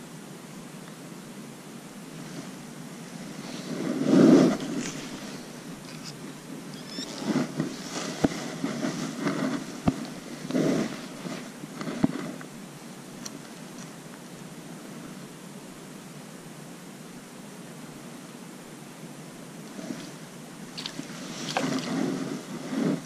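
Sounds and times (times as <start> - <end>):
steady hiss: 0.0 - 23.0
microphone handling rustle: 2.1 - 12.5, 19.7 - 23.0.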